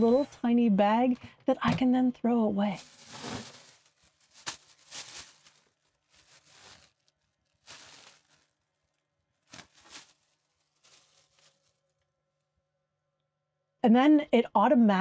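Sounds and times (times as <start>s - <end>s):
plastic bag rustling: 2.7s - 12.0s.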